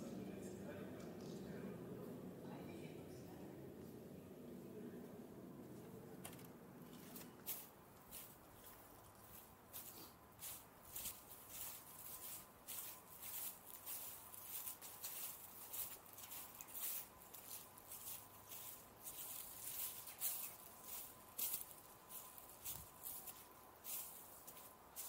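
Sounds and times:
footsteps on grass and leaves: 6.8s - 25.0s.

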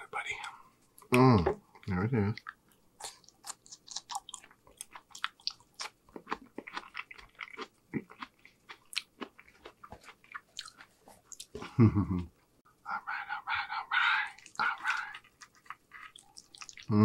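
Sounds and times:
asparagus being bitten and chewed: 2.4s - 11.8s, 14.3s - 17.0s.

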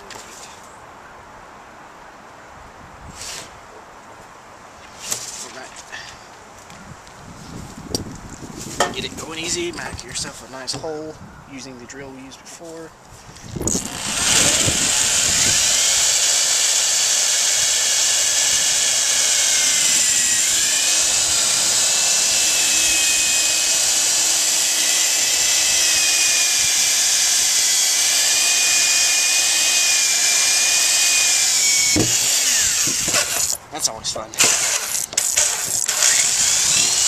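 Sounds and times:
electric drill boring through plastic: 13.6s - 33.6s, 34.4s - 37.0s.

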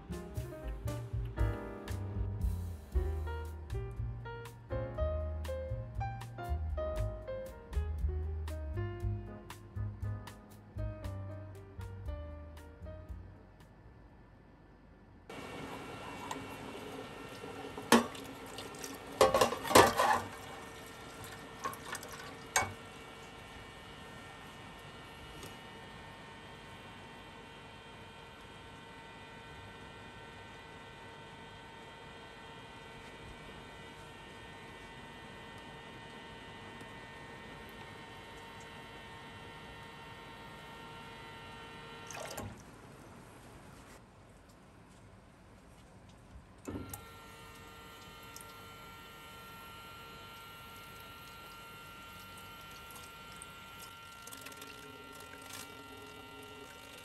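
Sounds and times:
electric water pump humming: 0.0s - 4.1s, 15.3s - 44.0s, 46.0s - 57.0s
water running from tap: 15.3s - 23.6s, 42.0s - 42.6s, 46.9s - 57.0s
dishes and cutlery clinking in sink: 17.8s - 20.7s, 21.6s - 22.8s
water splash: 42.1s - 42.7s.

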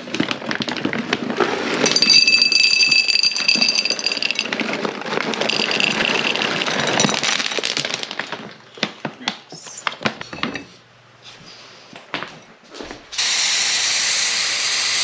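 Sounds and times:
kibble rattling into metal bowl: 0.2s - 8.6s.

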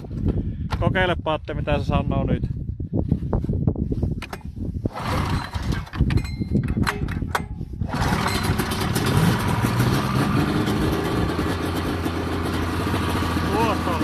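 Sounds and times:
two-stroke engine running: 4.9s - 6.2s, 7.8s - 14.0s
snowmobile engine cranking: 4.9s - 14.0s.

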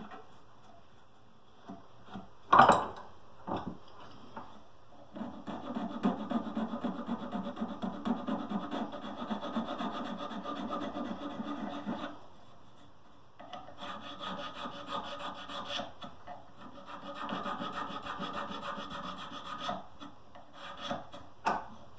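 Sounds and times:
hand file rasping on wood: 5.2s - 12.9s, 13.7s - 21.3s.

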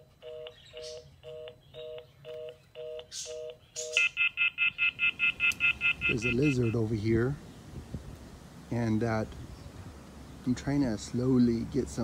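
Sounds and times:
two-note low busy tone beeping: 0.0s - 7.0s
high pulsing off-hook warning tone: 2.8s - 6.8s.

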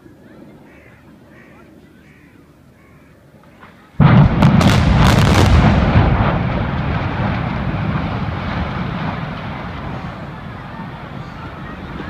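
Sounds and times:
sharp cracks: 3.5s - 10.6s
loud explosive blast: 4.0s - 11.6s
rumble of buildings collapsing: 4.0s - 12.0s.

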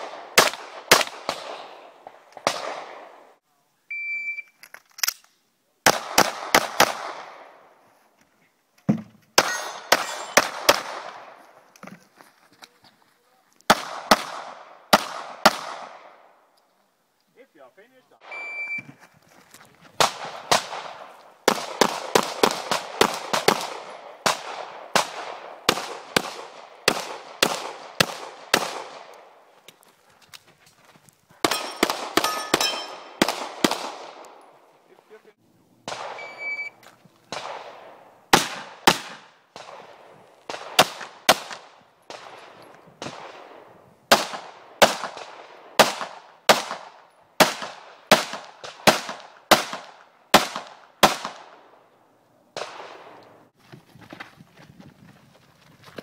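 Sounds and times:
pistol shots: 0.0s - 3.2s, 5.8s - 7.6s, 9.4s - 11.4s, 13.7s - 16.3s, 20.0s - 29.3s, 31.4s - 34.4s, 35.8s - 36.6s, 37.3s - 51.7s, 52.6s - 53.2s
short high beep: 3.9s - 4.6s, 18.3s - 18.9s, 36.2s - 36.8s.

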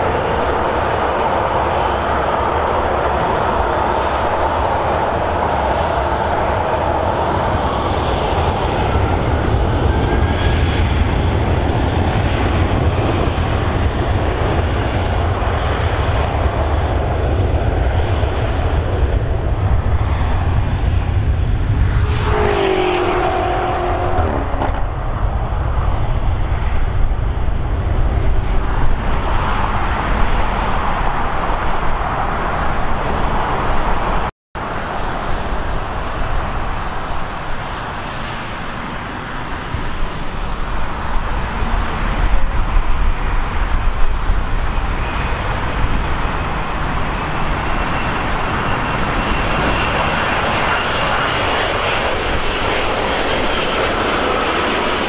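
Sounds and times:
jet engines roaring: 0.0s - 55.0s.

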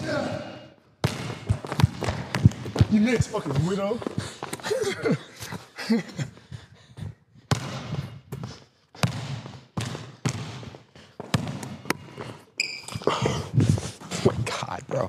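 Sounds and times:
basketball bouncing on court floor: 1.0s - 4.1s, 7.4s - 12.3s.

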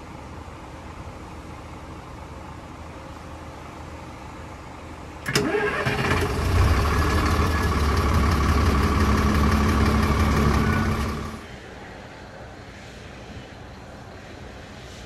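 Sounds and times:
diesel engine idling: 3.6s - 12.1s
starter motor whine: 5.2s - 11.4s.

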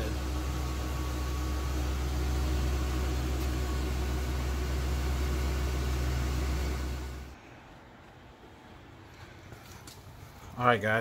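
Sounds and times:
motorhome engine idling: 0.0s - 7.4s.

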